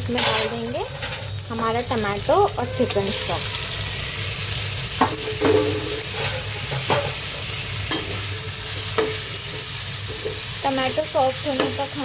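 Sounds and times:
vegetables sizzling in hot oil: 0.0s - 12.0s
metal spatula scraping a pan: 0.1s - 1.3s, 2.5s - 3.7s, 5.1s - 10.5s.

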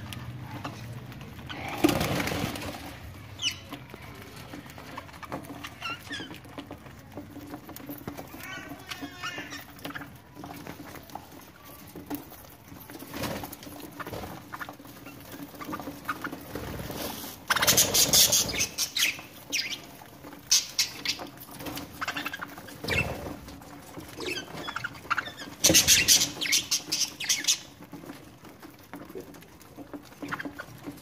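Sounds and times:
budgerigars chirping: 17.5s - 19.8s, 24.2s - 27.7s.

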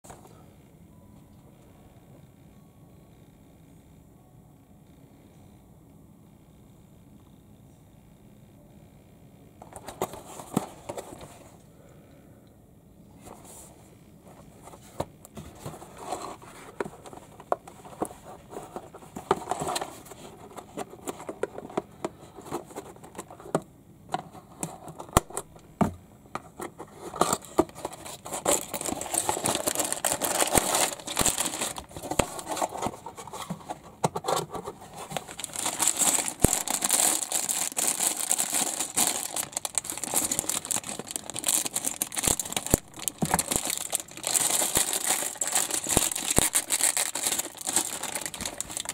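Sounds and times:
cardboard box being handled: 26.6s - 48.9s
plastic bags crinkling: 27.0s - 48.9s.

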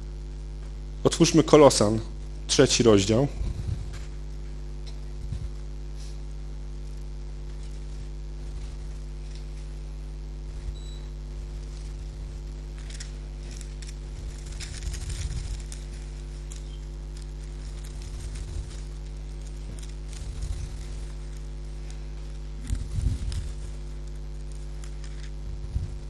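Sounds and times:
low electrical hum: 0.0s - 26.0s
book pages rustling: 7.4s - 9.8s, 11.5s - 26.0s.

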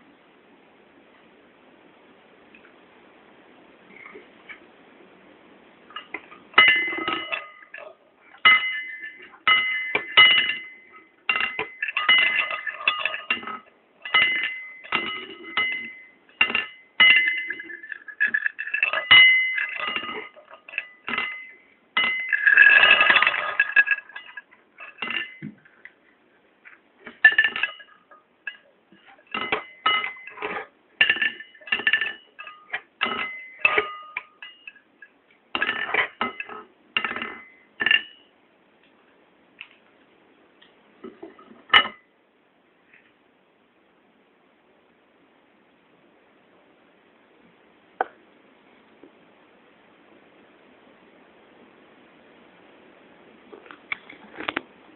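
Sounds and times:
chopsticks tapping plates: 6.0s - 25.6s
rattling clatter: 6.0s - 25.7s, 27.0s - 34.8s.

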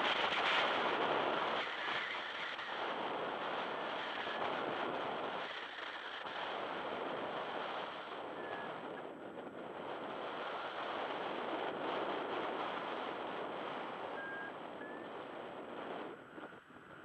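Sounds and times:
wind buffeting microphone: 0.0s - 17.0s
short high beeps: 14.2s - 15.1s.

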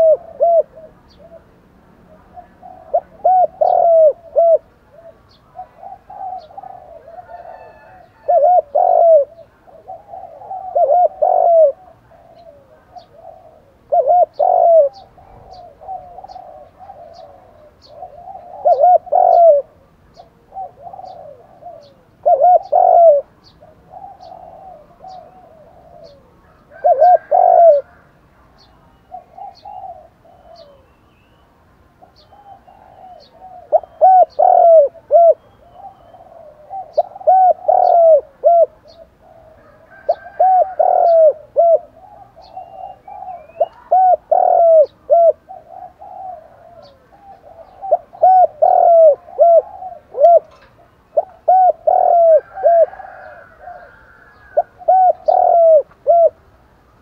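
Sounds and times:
dove cooing: 0.0s - 57.0s.

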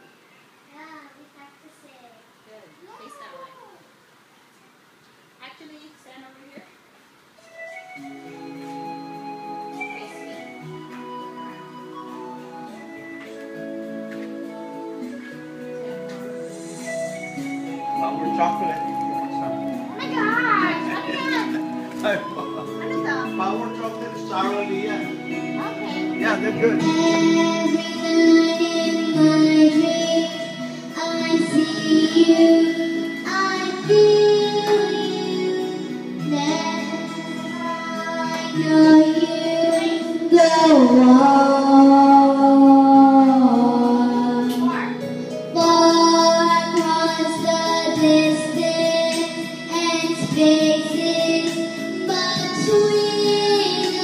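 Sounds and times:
backing music: 7.4s - 54.0s
young girl singing: 19.8s - 21.6s, 24.1s - 54.0s.

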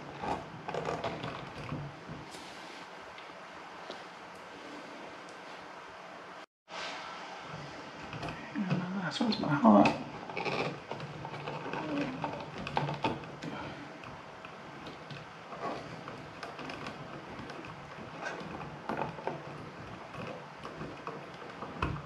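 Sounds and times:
wires rustling: 7.4s - 22.0s.

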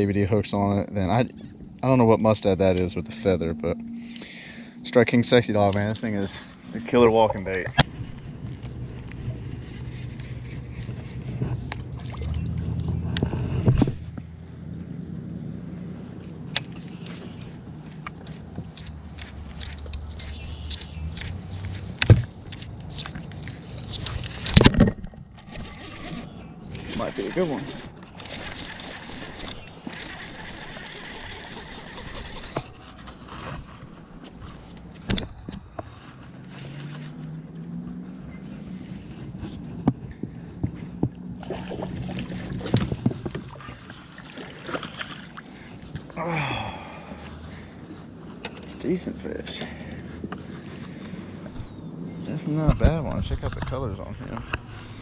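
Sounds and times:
electric trolling motor humming: 25.4s - 32.9s
fishing reel whirring: 25.5s - 32.8s.

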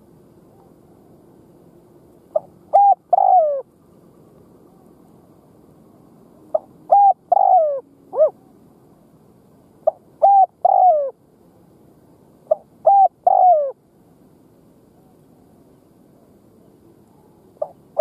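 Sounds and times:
dove cooing: 2.3s - 3.7s, 6.5s - 8.5s, 9.8s - 11.2s, 12.5s - 13.8s, 17.1s - 18.0s.

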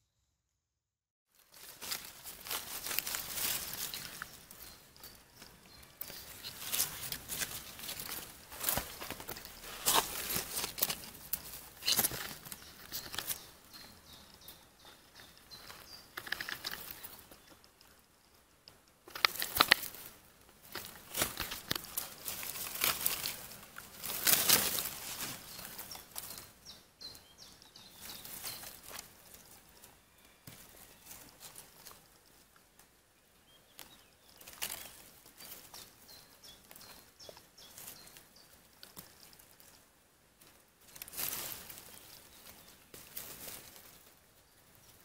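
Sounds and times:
leaf litter rustling and crackling: 1.3s - 14.2s, 19.1s - 26.5s, 40.4s - 45.0s.

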